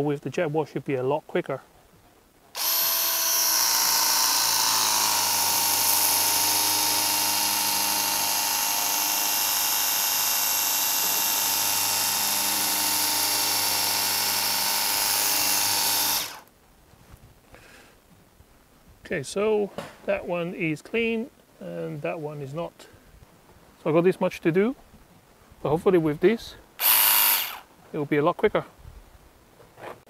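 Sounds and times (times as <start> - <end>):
pressure washer pump whining: 2.6 - 16.5, 26.8 - 27.6.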